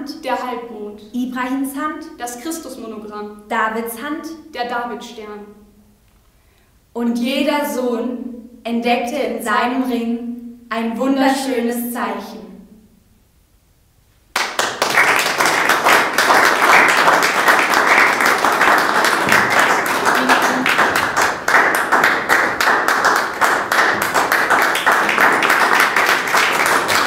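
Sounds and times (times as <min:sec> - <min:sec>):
audience applauding: 0:14.3 - 0:27.0.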